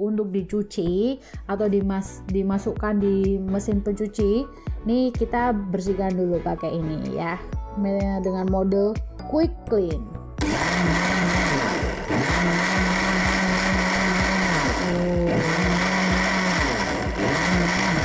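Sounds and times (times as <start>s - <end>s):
blender motor running: 10.4s - 18.0s.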